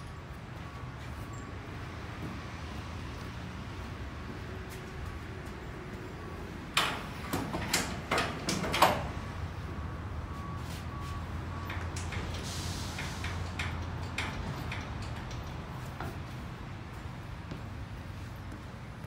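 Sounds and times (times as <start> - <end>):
metal shelving clanking: 6.7 - 9.3.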